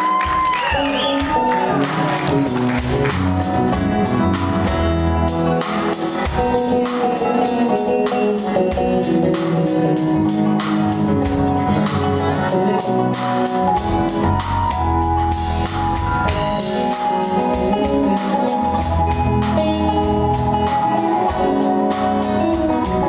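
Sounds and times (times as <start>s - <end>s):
live band playing: 0.0s - 23.0s
steady drum beat: 0.0s - 23.0s.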